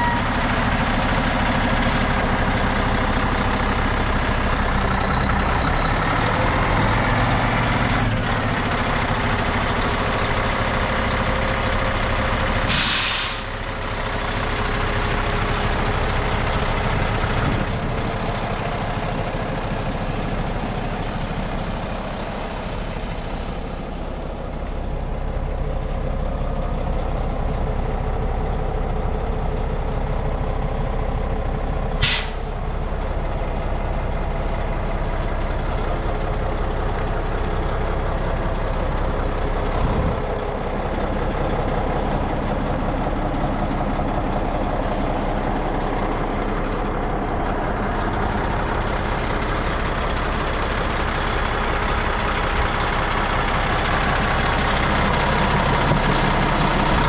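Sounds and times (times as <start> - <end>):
diesel truck engine idling: 0.0 - 57.0
compressed air hiss: 12.7 - 13.5.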